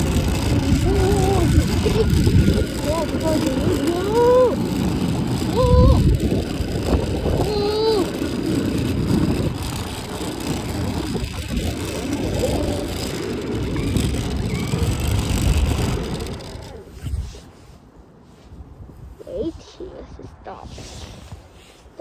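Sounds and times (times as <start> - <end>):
electric motor running: 0.0 - 16.9
toy vehicle wheels on pavement: 0.0 - 17.5.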